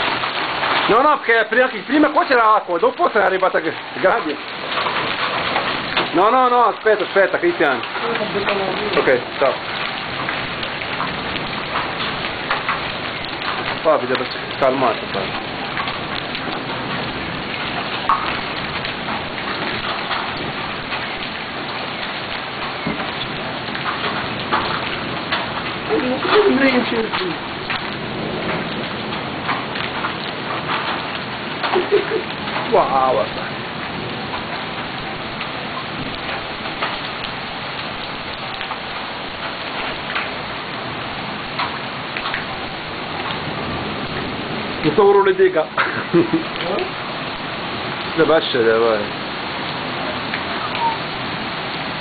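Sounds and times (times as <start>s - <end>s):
heavy rain pouring: 0.0s - 52.0s
drops ticking on hard surfaces: 4.2s - 33.5s.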